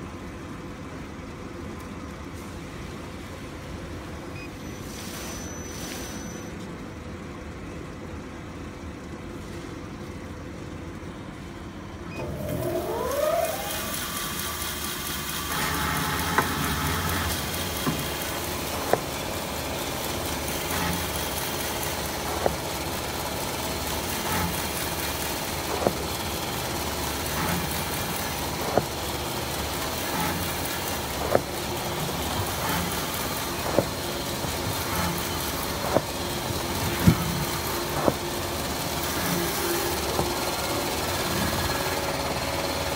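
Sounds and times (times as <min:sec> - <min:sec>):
machine hum and whine: 0:00.0 - 0:42.9
sharp machine clacks: 0:13.5 - 0:42.9.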